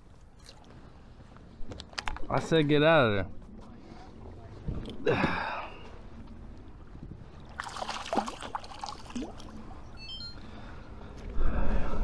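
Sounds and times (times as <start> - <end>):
water splashing against kayak: 7.5 - 9.7.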